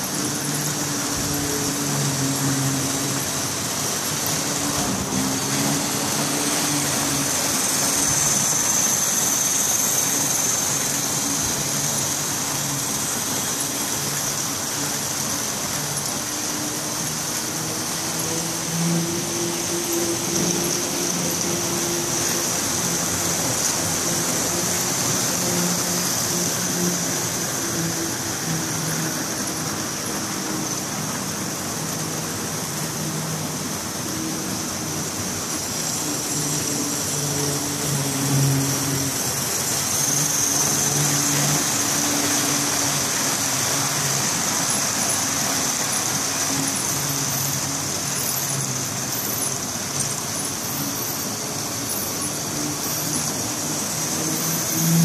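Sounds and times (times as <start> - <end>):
constant high whine: 0.0 - 55.0.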